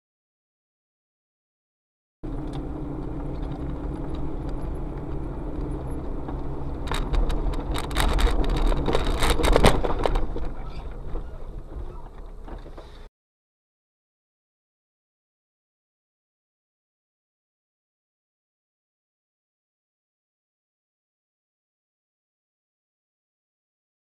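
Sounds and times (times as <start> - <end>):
car engine and road rumble: 2.2 - 13.1.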